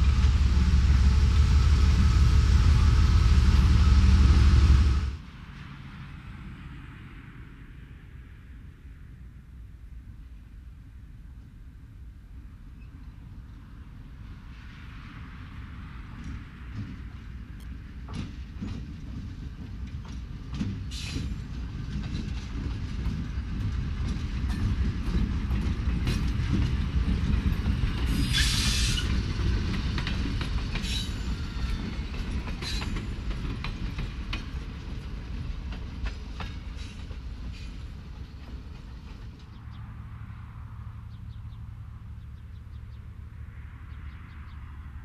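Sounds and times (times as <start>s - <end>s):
locomotive engine rumble: 0.0s - 5.3s
wheels clicking over rail joints: 16.2s - 39.6s.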